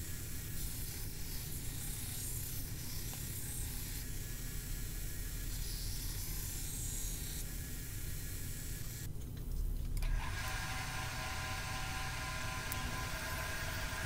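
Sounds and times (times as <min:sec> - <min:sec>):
belt grinder humming: 0:10.0 - 0:14.0.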